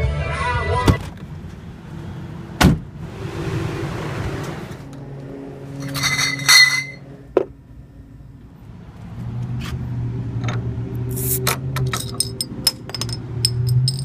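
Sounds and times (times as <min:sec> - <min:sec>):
glass bottles clinking: 0:05.8 - 0:07.0, 0:11.8 - 0:14.0.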